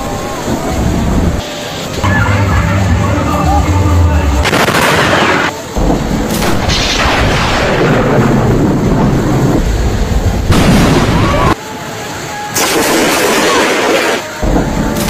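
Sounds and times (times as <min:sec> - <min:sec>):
thunder rumbling: 0:00.0 - 0:11.6, 0:12.6 - 0:15.0
thunder cracks: 0:02.0 - 0:11.6, 0:12.6 - 0:15.0.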